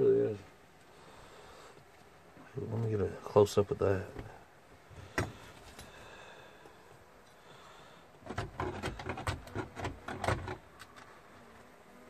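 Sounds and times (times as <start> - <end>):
rustling and scraping of honeycomb: 6.7 - 12.0.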